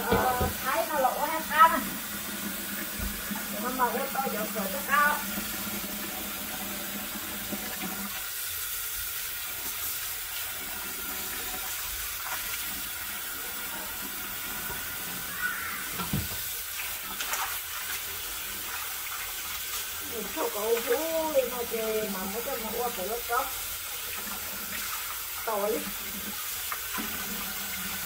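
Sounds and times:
faucet running into sink: 0.0 - 28.0
water splashing: 15.3 - 23.4.

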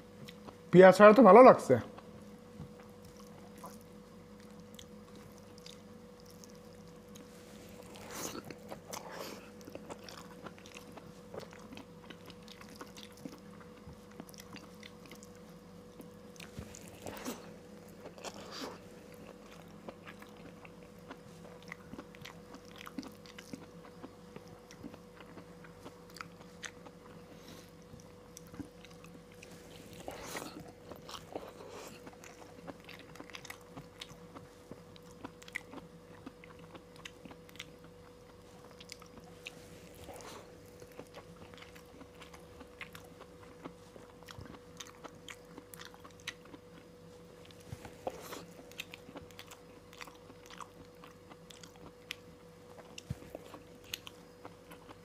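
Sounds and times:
man chewing food: 0.0 - 0.7, 1.9 - 55.0.

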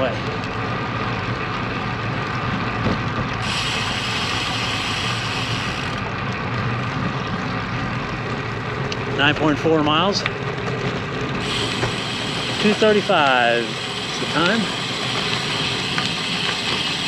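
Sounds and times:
bicycle tyre rumble on asphalt: 0.0 - 17.0
high hiss: 3.4 - 5.9, 11.4 - 17.0.

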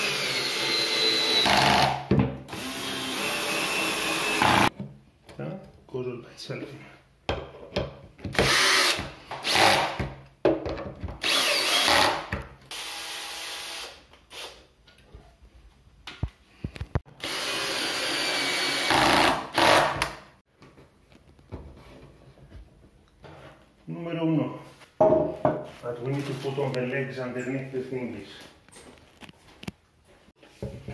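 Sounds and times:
drill driving screws into wood: 0.0 - 4.7, 8.3 - 10.2, 11.2 - 14.7, 17.2 - 20.2.

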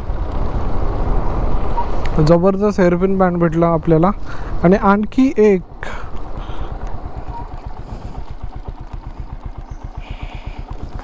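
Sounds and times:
motorcycle engine running: 4.3 - 11.0.

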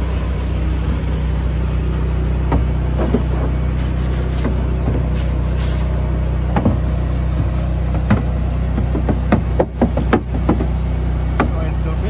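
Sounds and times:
engine humming: 0.0 - 12.0
plastic bins knocking and clicking: 8.0 - 10.7.

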